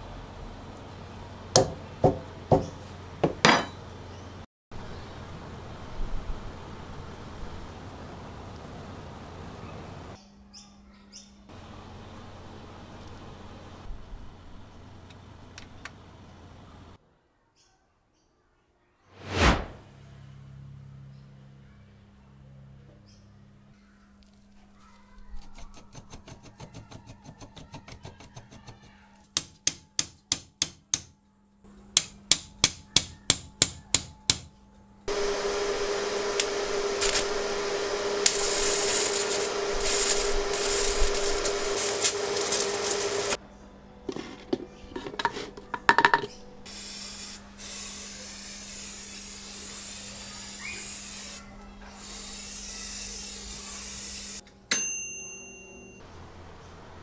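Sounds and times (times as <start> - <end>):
loud steady machine noise: 35.1 - 43.4
spray gun hissing: 35.1 - 43.4.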